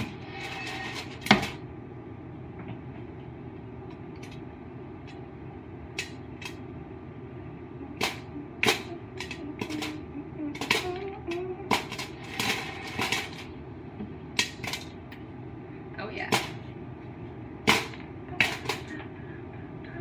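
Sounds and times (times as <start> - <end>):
steady low hum: 0.0 - 20.0
popcorn popping: 7.9 - 15.0, 17.6 - 19.0.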